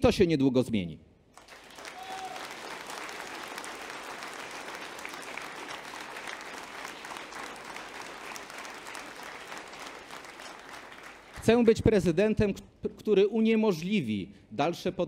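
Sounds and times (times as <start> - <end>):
audience applauding: 1.4 - 11.8.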